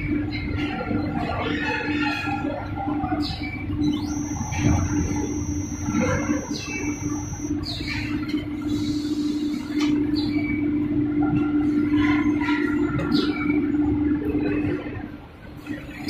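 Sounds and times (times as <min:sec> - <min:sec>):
machine motor and conveyor hum: 0:02.7 - 0:11.9
machine squeaks and hisses: 0:03.3 - 0:07.9.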